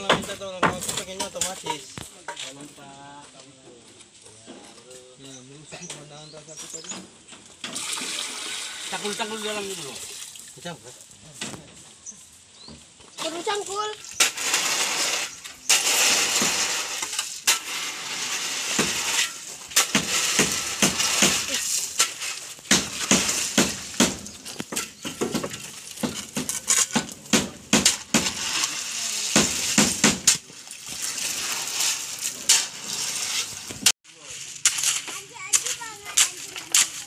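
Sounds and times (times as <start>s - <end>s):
shovel scraping through wet gravel: 13.2s - 37.0s.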